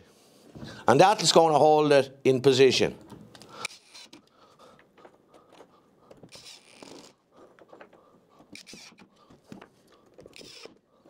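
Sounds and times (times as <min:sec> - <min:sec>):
wooden blocks scraping on board: 0:03.6 - 0:04.3, 0:05.6 - 0:10.8.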